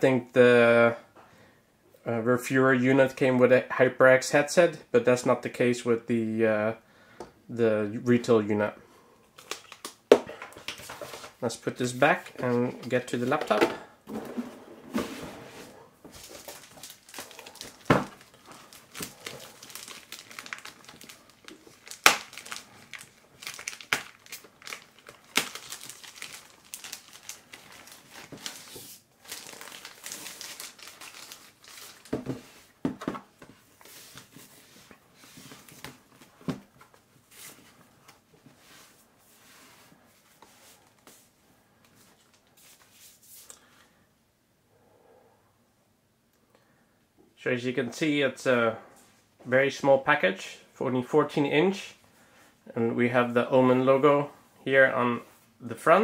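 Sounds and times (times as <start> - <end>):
plastic packaging crinkling: 9.4 - 10.0, 16.1 - 32.8.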